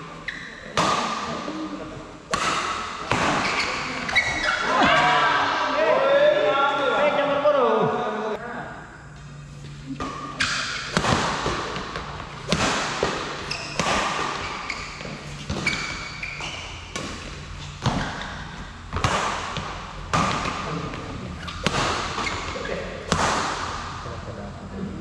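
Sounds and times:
racket hitting shuttlecock: 0.8s - 1.5s, 2.3s - 5.0s, 10.0s - 24.0s.

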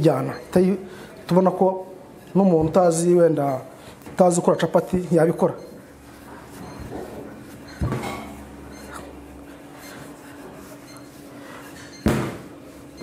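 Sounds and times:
rolling pin rolling dough: 6.0s - 13.0s.

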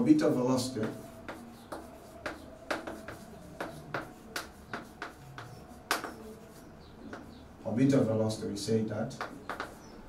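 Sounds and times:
chalk tapping on blackboard: 0.6s - 7.4s, 9.1s - 10.0s.

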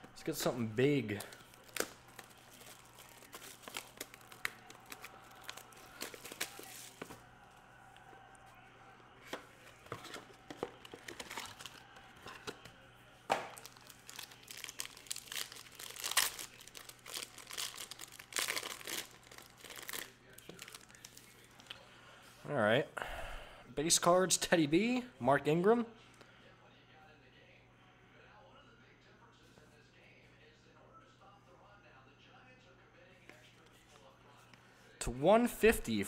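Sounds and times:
plastic wrapping crinkling and tearing: 1.0s - 7.2s, 10.0s - 12.6s, 13.4s - 21.4s
packaging crackles: 1.1s - 7.0s, 10.4s - 12.6s, 13.4s - 21.2s.

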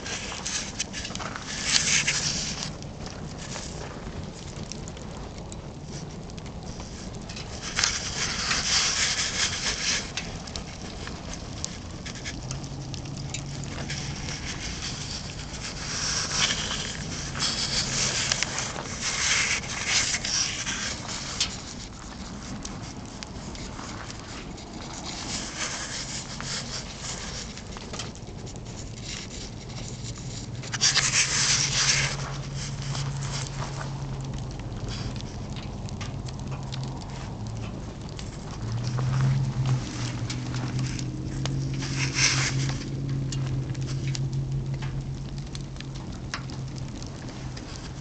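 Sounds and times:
fire crackling: 0.0s - 48.0s
fire rushing noise: 0.0s - 48.0s.

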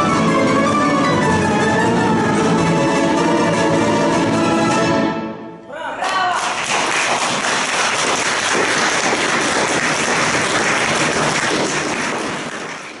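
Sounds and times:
audience applause: 6.0s - 13.0s.

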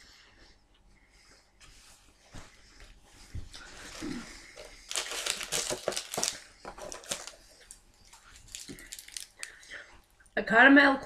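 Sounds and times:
candy wrapper crinkling: 3.9s - 9.8s.

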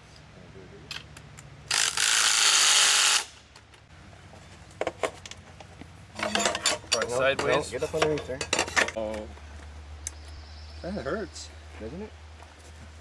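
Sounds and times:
power drill driving a nut: 1.7s - 3.4s
tools clinking: 6.2s - 9.2s.

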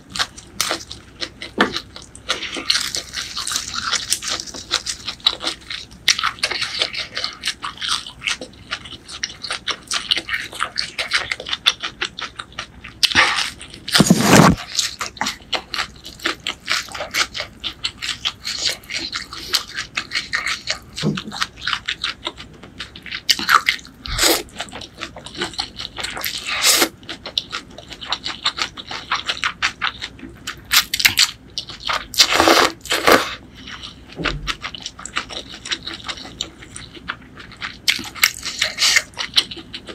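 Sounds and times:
wet chewing: 0.0s - 39.9s
slurping noodles: 14.0s - 14.7s.

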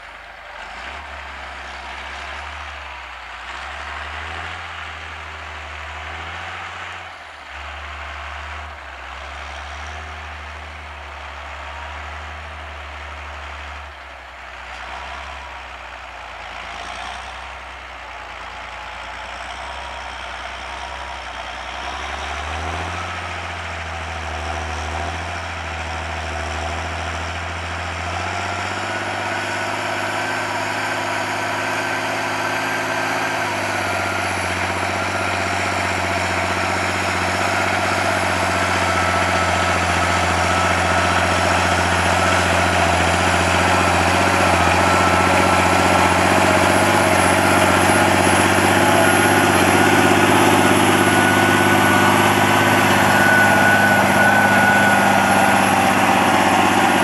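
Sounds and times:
tractor diesel engine running: 0.0s - 57.0s
steady whine: 30.6s - 57.0s.

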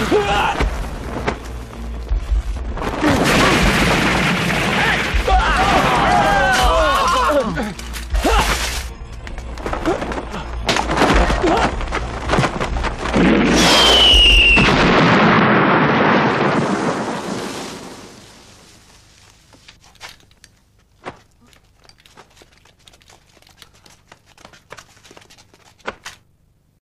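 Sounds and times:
explosion rumbling: 0.1s - 6.8s, 10.8s - 18.3s
falling whistle: 13.5s - 14.8s
faint clicks and crackles: 19.1s - 26.2s.

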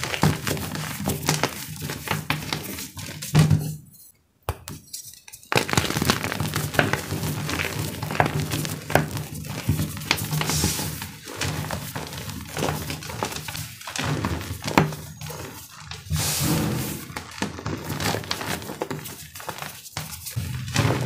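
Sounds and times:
chalk crunching and crumbling: 4.9s - 21.0s.

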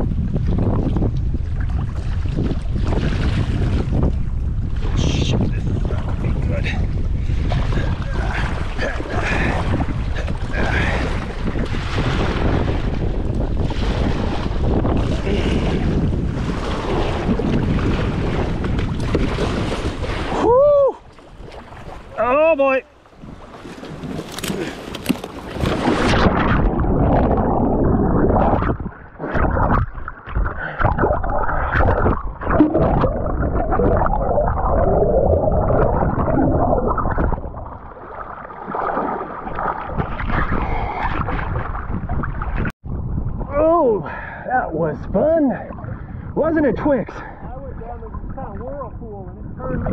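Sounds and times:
wind noise on microphone: 0.0s - 22.2s, 23.1s - 49.9s
river water gurgling and rushing: 21.0s - 41.9s.

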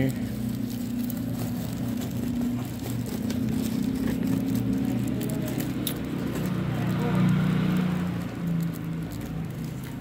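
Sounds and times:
low engine-like hum: 0.0s - 10.0s
paper and tape crinkling: 0.0s - 10.0s.

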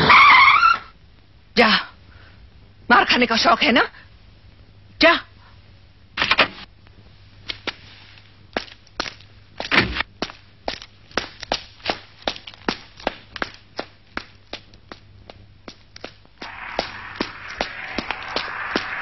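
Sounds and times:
footsteps: 16.4s - 19.0s.

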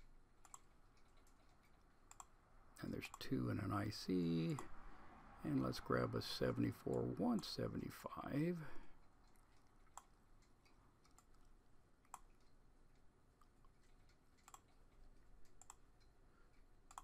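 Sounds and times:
computer mouse clicks: 0.0s - 2.4s, 9.0s - 17.0s.

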